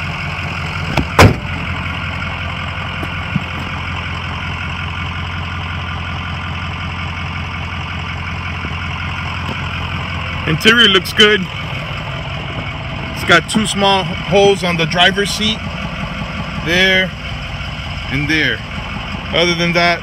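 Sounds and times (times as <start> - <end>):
diesel engine idling: 0.0 - 20.0
truck hood slamming shut: 0.9 - 1.6.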